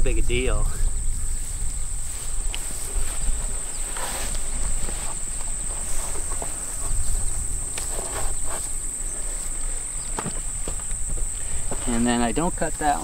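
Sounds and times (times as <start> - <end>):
crickets chirping: 0.0 - 13.0
rustles and taps of hay: 1.4 - 12.2.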